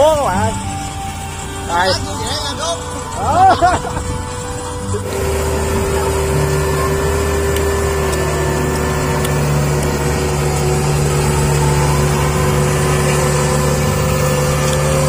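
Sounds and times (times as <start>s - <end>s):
engine running steadily: 0.0s - 15.0s.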